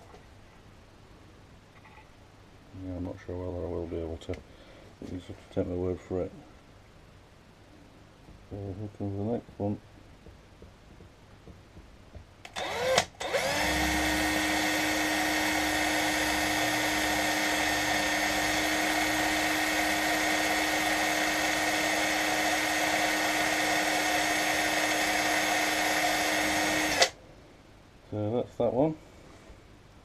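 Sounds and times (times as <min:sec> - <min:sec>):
cordless drill whining: 0:12.5 - 0:27.2.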